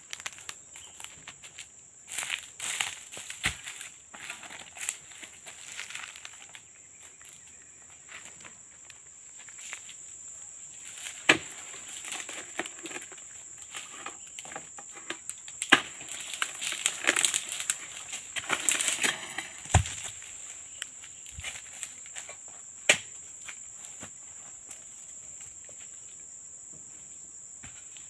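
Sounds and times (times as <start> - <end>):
dry palm fronds rustling: 0.1 - 7.4, 10.8 - 22.4.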